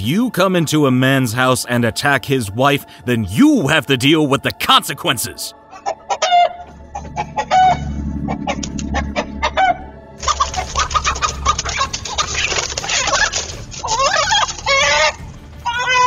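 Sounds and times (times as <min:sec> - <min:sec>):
chickens squawking in alarm: 0:05.7 - 0:16.0.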